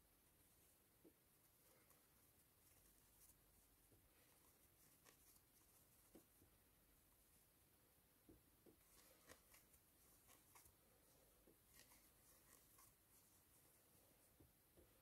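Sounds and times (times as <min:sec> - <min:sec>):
crochet hook ticks and rustles: 0:04.4 - 0:06.5, 0:08.3 - 0:10.8, 0:11.4 - 0:13.4.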